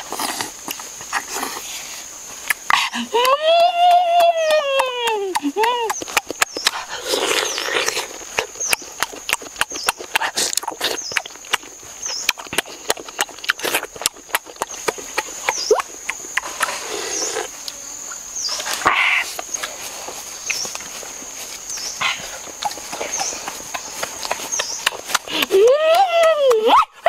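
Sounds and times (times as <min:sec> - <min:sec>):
wet chewing and slurping: 0:05.3 - 0:17.5, 0:19.4 - 0:25.6.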